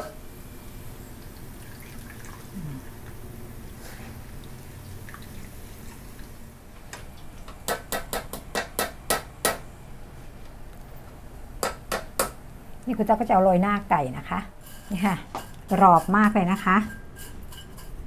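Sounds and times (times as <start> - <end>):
utensils knocking against wok: 14.7 - 18.0.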